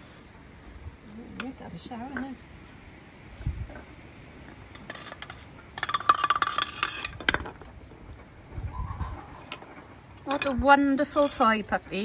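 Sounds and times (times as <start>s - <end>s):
metal object clinking and rattling: 4.7s - 7.7s, 10.2s - 11.7s.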